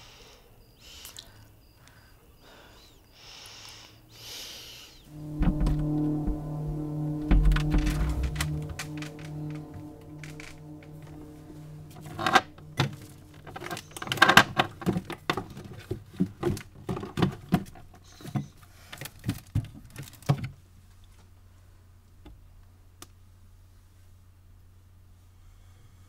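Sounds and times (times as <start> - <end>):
faint low hum: 5.0 - 15.0.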